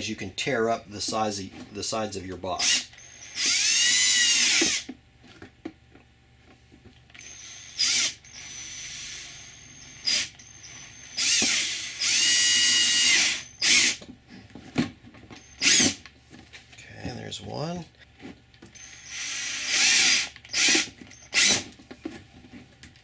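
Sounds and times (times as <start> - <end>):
cordless drill whining in bursts: 2.6 - 4.9, 7.2 - 14.0, 15.4 - 16.0, 18.8 - 21.7.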